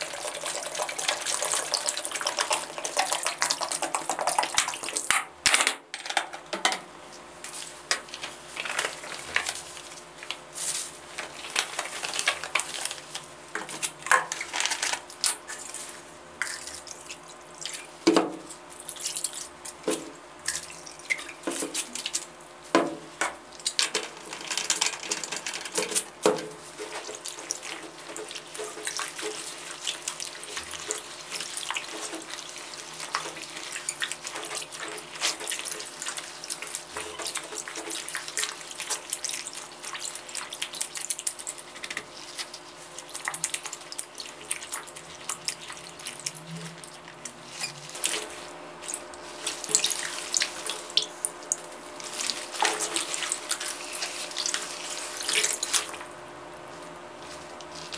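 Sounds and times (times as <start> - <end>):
liquid pouring: 0.0 - 5.1
liquid splashing in plastic basin: 0.0 - 5.3, 7.9 - 56.2.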